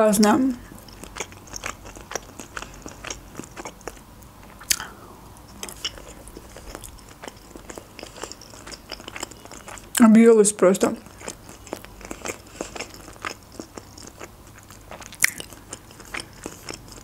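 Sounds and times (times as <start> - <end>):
person chewing food: 0.2 - 10.0, 10.8 - 17.0.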